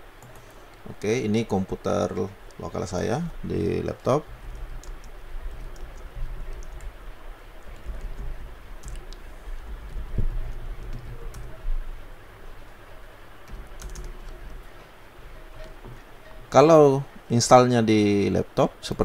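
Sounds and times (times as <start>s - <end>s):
steady low hum: 0.0s - 19.0s
laptop keyboard typing: 0.2s - 0.5s, 3.5s - 16.6s.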